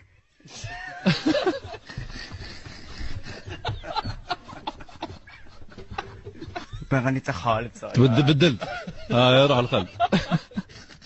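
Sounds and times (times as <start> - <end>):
stifled laughter and snickering: 0.6 - 6.9.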